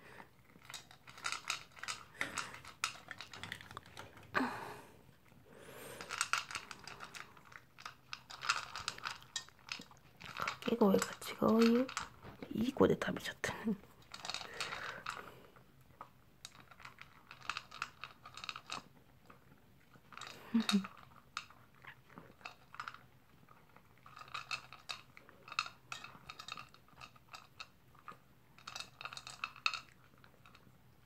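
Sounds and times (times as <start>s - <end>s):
dog crunching food: 0.4s - 4.2s, 6.0s - 12.4s, 14.0s - 30.8s.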